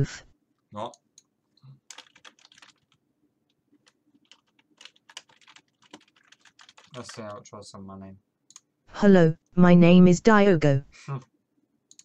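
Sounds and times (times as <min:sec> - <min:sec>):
faint keyboard typing: 0:00.8 - 0:07.4, 0:08.5 - 0:08.7.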